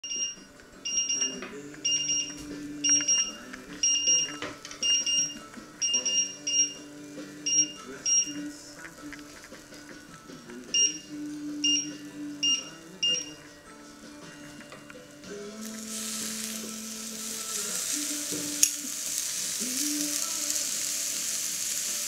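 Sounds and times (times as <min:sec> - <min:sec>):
hob touch control beeps: 0:00.0 - 0:08.5, 0:10.7 - 0:13.5.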